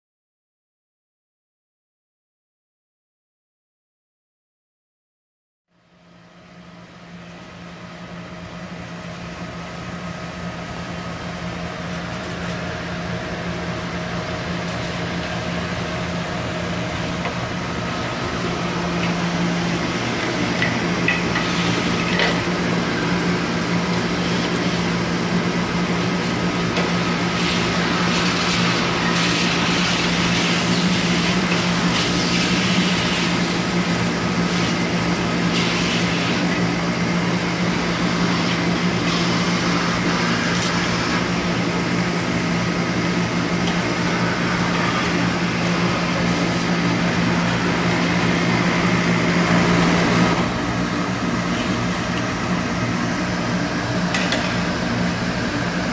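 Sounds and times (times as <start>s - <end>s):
industrial vacuum droning: 6.4s - 55.9s.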